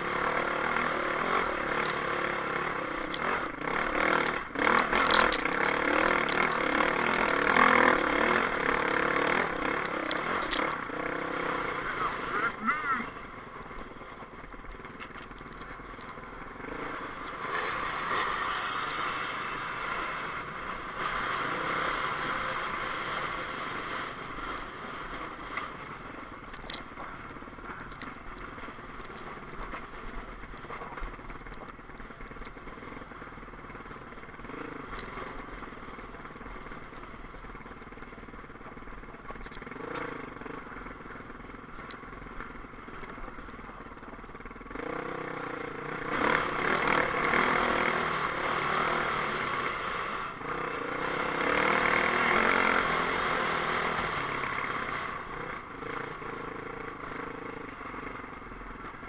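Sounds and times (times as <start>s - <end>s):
dirt bike engine running: 0.0s - 59.0s
sharp clicks: 0.3s - 10.8s, 14.6s - 16.3s, 26.4s - 32.6s, 46.0s - 49.4s.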